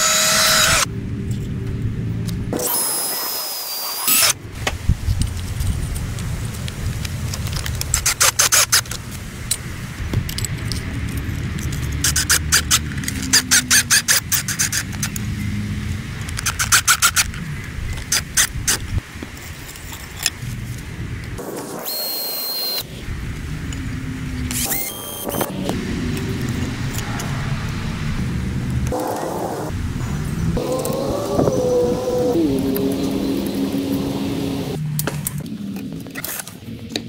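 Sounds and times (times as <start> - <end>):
power drill drilling: 0.0 - 0.9, 2.6 - 4.4, 24.6 - 25.5
high whine: 21.1 - 35.0.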